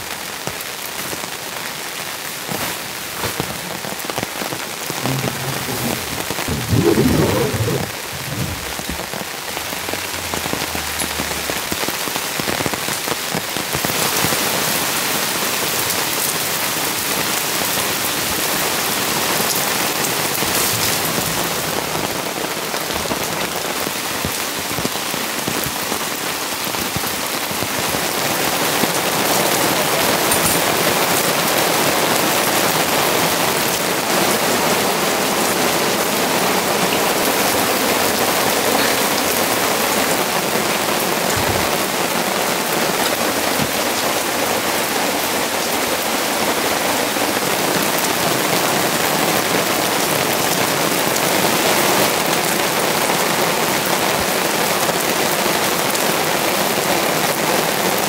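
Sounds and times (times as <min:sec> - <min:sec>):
steady rain patter: 0:00.0 - 0:58.0.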